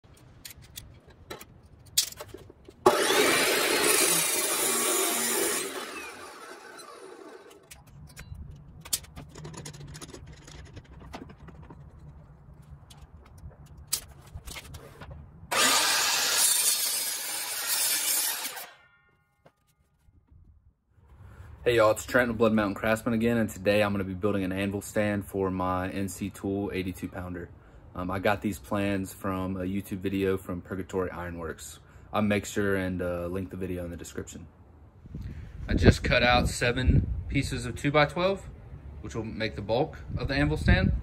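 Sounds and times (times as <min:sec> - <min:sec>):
clicks and handling knocks: 0:00.1 - 0:02.9, 0:07.4 - 0:15.3
power saw cutting wood: 0:02.8 - 0:07.7, 0:15.5 - 0:18.8.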